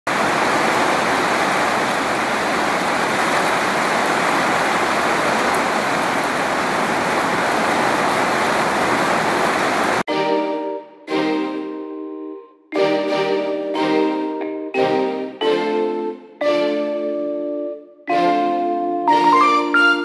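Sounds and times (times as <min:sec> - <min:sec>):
steady rain falling: 0:00.1 - 0:10.1
soft piano music: 0:10.1 - 0:20.0.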